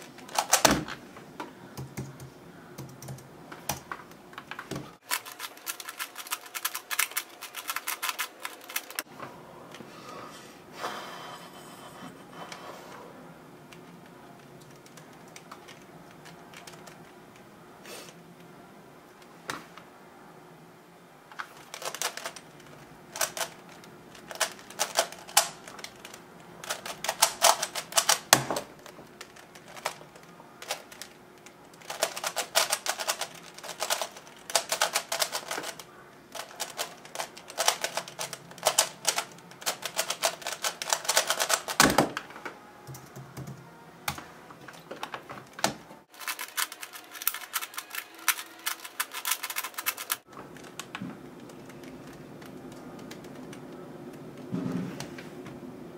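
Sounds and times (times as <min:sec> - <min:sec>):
puzzle cube clicking: 0:05.1 - 0:09.1, 0:21.6 - 0:28.3, 0:29.2 - 0:41.8, 0:46.2 - 0:53.7.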